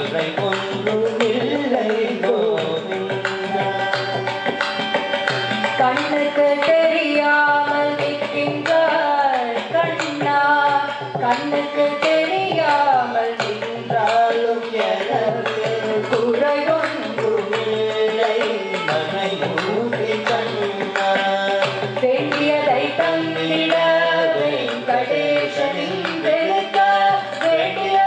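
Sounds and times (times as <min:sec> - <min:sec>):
man and woman singing: 0:00.0 - 0:04.9, 0:05.5 - 0:28.0
hand drum playing: 0:00.0 - 0:28.0.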